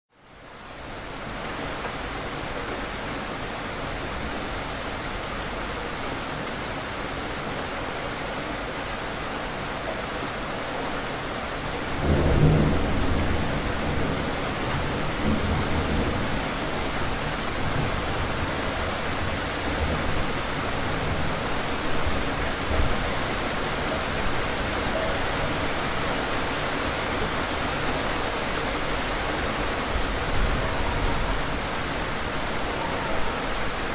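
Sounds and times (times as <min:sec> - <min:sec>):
heavy rain: 0:00.1 - 0:33.9
low thunder rumbling: 0:12.0 - 0:28.0.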